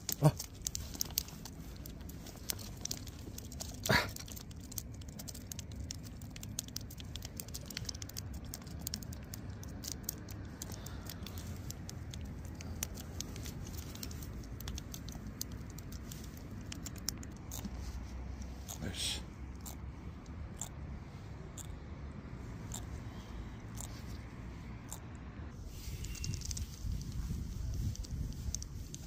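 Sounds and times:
low steady rumble: 0.0s - 29.0s.

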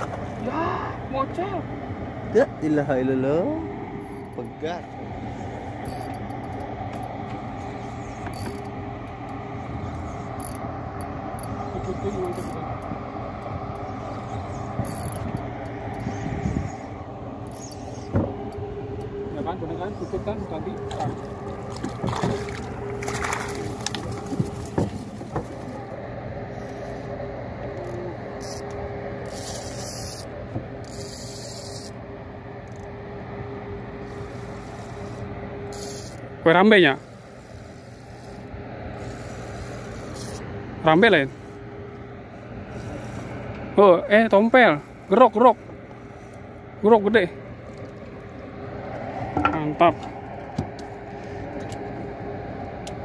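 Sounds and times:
fishing reel gears whirring: 0.0s - 52.8s
low mechanical hum: 0.0s - 53.0s
fishing reel gears clicking: 5.8s - 6.7s, 8.2s - 8.8s, 10.4s - 10.7s, 11.4s - 12.9s, 14.8s - 16.1s, 17.4s - 18.1s, 27.8s - 32.0s, 32.6s - 32.9s, 34.2s - 36.2s, 36.9s - 40.5s.

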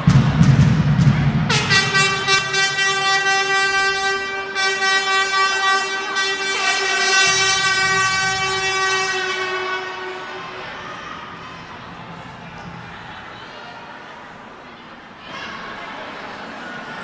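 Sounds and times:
air horn long note: 1.5s - 11.5s.

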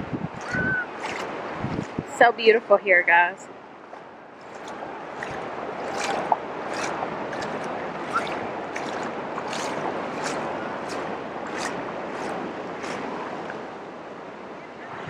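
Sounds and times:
surf washing over sand: 0.0s - 15.0s
splashy ticks: 0.4s - 2.0s, 3.9s - 13.6s.

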